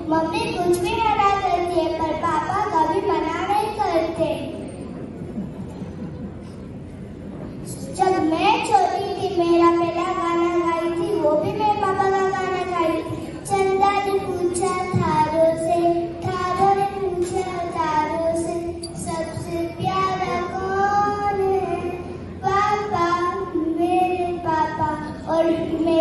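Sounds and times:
child singing slow melody: 12.9s - 26.0s.

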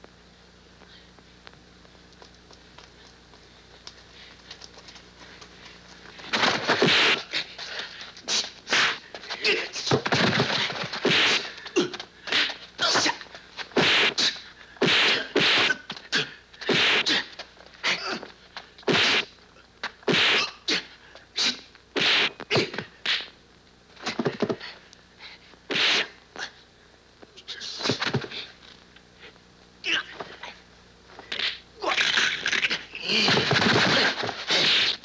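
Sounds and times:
punch and kick thwacks: 14.8s - 15.8s.

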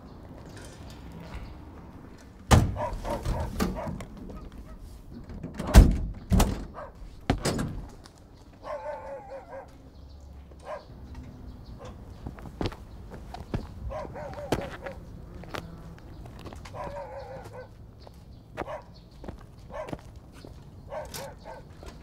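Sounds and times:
dog barking: 2.8s - 4.8s, 6.7s - 7.0s, 8.6s - 9.8s, 10.6s - 11.0s, 13.9s - 15.0s, 16.7s - 17.8s, 18.6s - 19.0s, 19.7s - 20.0s, 20.9s - 21.8s.

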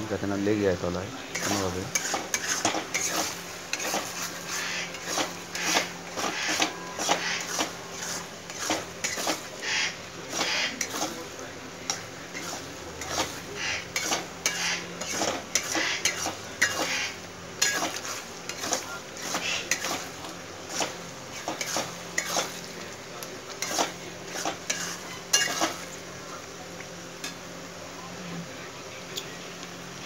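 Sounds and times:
soft sizzle of oil: 0.3s - 30.0s
steel spatula scraping a pan: 1.3s - 11.3s, 11.9s - 22.7s, 23.6s - 25.8s.

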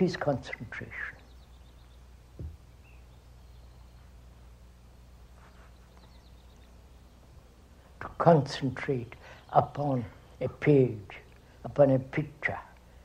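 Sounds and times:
steady low hum: 0.0s - 13.0s
faint bird chirp: 0.5s - 8.2s
soft thump: 2.4s - 2.6s.

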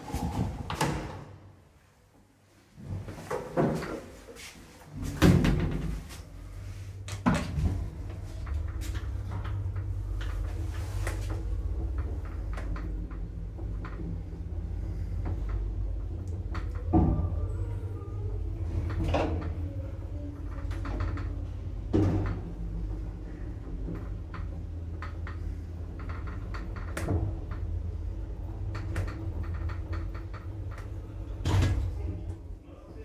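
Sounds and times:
lift drive hum: 6.2s - 32.6s.

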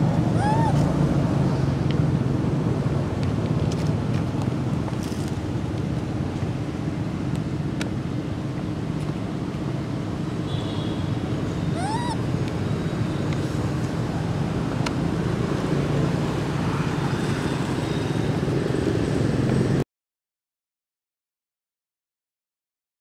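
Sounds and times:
rising and falling call: 0.2s - 0.9s, 11.7s - 12.3s.

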